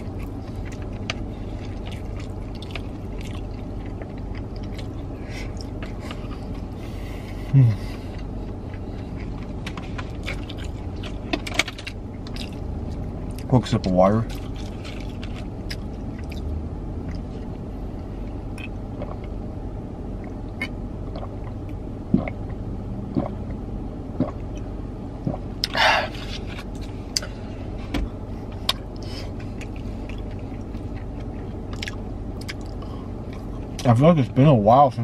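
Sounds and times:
car interior hum: 0.0s - 35.0s
person drinking: 18.6s - 19.3s, 21.1s - 21.4s, 22.1s - 22.5s.

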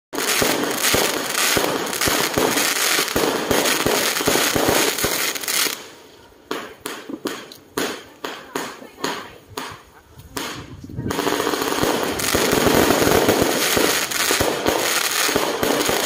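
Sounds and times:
fireworks crackling: 0.1s - 16.0s
sharp firework bangs: 0.2s - 5.9s, 6.5s - 16.0s
deep thumps of fireworks launching: 6.5s - 16.0s.

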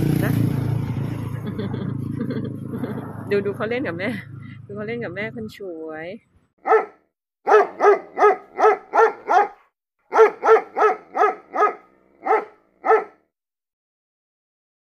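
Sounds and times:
dog barking: 6.6s - 13.2s.

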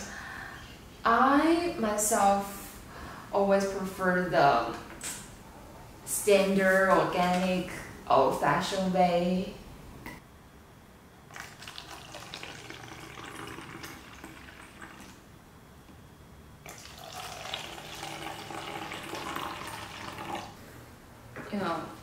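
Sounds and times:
drink pouring into plastic cup: 11.3s - 15.2s, 16.7s - 20.6s.

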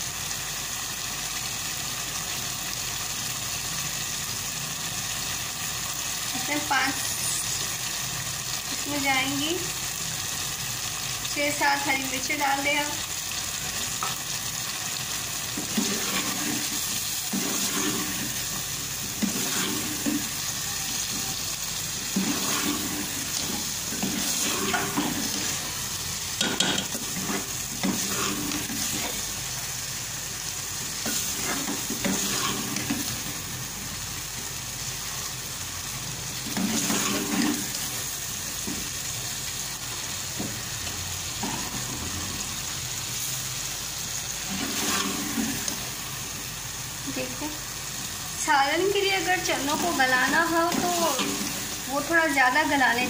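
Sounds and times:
curry sizzling in a metal pot: 0.0s - 53.0s
metal ladle scraping a pot: 15.6s - 18.4s, 19.2s - 21.4s, 22.1s - 25.6s, 26.4s - 29.2s, 31.0s - 33.0s, 36.6s - 37.7s, 44.5s - 45.7s.

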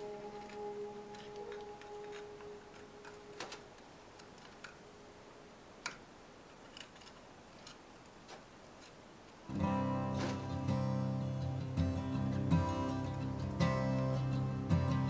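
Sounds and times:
faint irregular clicks and taps: 5.8s - 9.4s.

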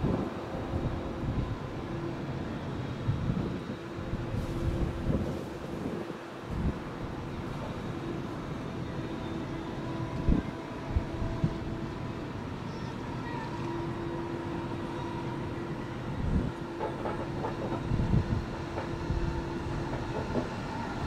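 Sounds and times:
train rumbling past: 0.0s - 21.0s
train wheels knocking: 16.6s - 20.7s.

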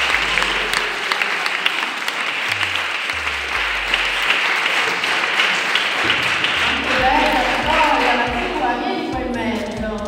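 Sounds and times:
background music with bass line: 0.0s - 1.0s, 2.5s - 4.5s, 6.6s - 10.0s
audience clapping: 0.0s - 9.8s.

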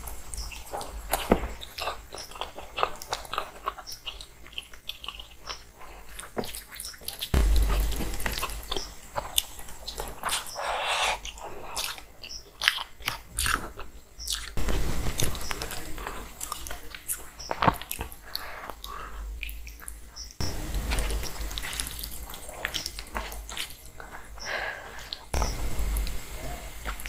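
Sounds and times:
chewing food: 0.0s - 7.4s, 9.2s - 14.6s, 15.2s - 25.4s
dull thump: 7.4s - 10.0s.

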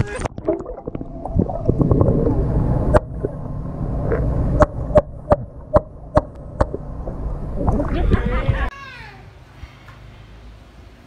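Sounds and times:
underwater water rumble: 0.0s - 8.7s.

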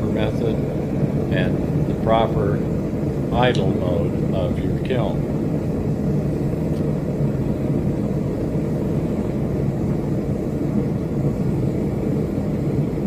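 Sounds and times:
propane flame rumbling in kiln: 0.0s - 13.0s.

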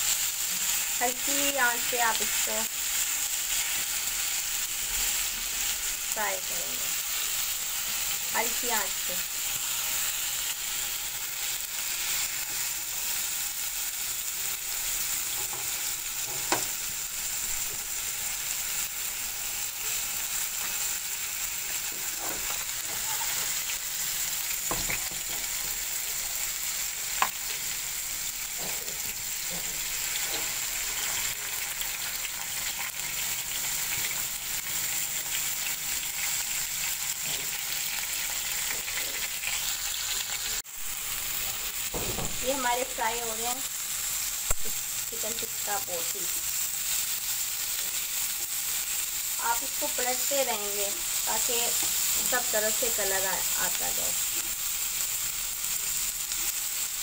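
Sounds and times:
chicken sizzling in oil: 0.0s - 57.0s.

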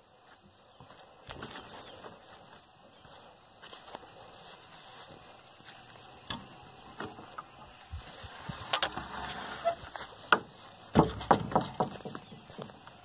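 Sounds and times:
wooden boards knocking: 10.3s - 12.4s.

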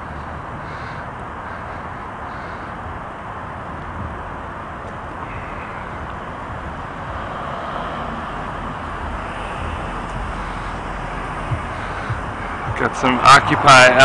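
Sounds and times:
city traffic road noise: 0.0s - 14.0s.

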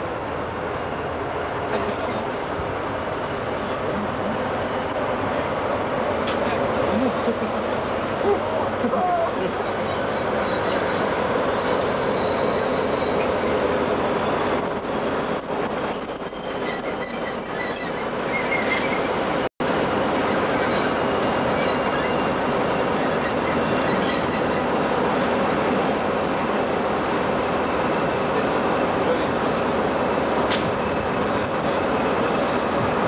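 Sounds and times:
wheel flange squeal: 7.4s - 8.2s, 12.1s - 13.3s, 14.5s - 19.1s, 30.2s - 31.0s.

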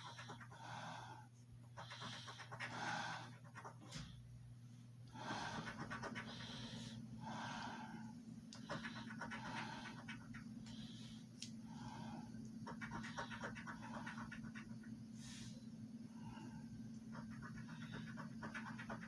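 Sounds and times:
faint low hum: 0.0s - 19.0s
coin scraping scratch card: 12.6s - 14.7s, 17.1s - 19.0s.

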